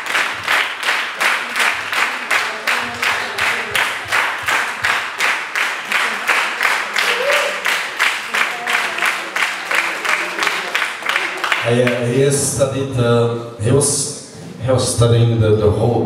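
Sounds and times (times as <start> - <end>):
crowd clapping in unison: 0.0 - 12.2.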